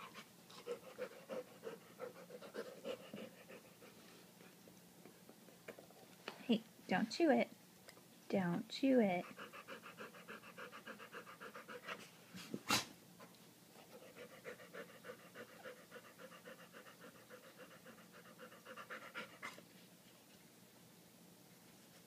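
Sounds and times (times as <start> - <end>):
dog panting: 0.0 - 4.6, 9.2 - 12.5, 13.2 - 19.7.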